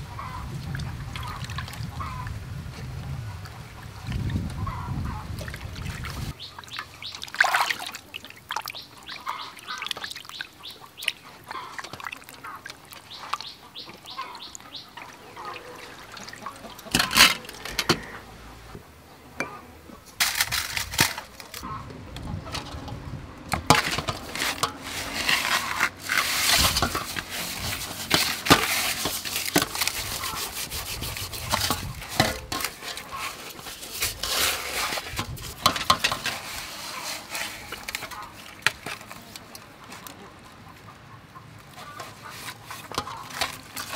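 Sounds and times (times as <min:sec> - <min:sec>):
wet squelching and slapping: 0:05.3 - 0:17.4
gritty salt rubbing: 0:23.9 - 0:38.4.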